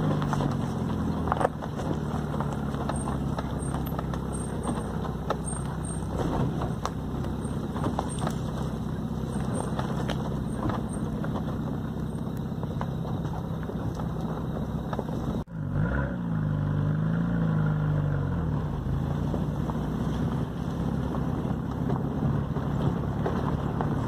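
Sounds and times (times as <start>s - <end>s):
tyres rolling over twigs: 0.0s - 15.4s, 18.9s - 24.0s
vehicle engine running: 0.0s - 24.0s.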